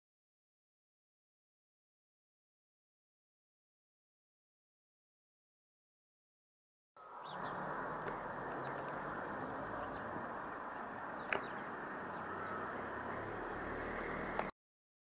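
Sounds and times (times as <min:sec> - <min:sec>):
faint bird chirps: 0:07.0 - 0:07.7, 0:11.1 - 0:12.9
distant traffic hum: 0:07.0 - 0:14.5
sharp clicks: 0:11.2 - 0:11.6.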